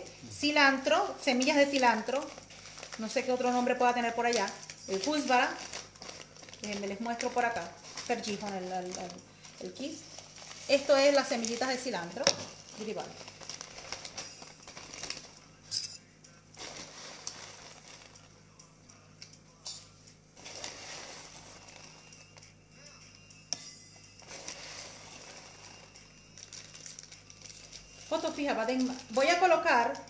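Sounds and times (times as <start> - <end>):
plastic bag rustling: 0.0 - 15.6, 16.6 - 18.3, 20.4 - 22.4, 24.2 - 30.0
metal spoon clicking and clinking: 15.7 - 16.1.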